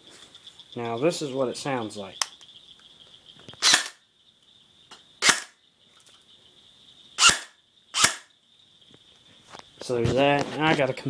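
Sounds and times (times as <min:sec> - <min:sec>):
airsoft rifle shots: 0:03.6 - 0:04.0, 0:05.2 - 0:05.6, 0:07.2 - 0:08.3.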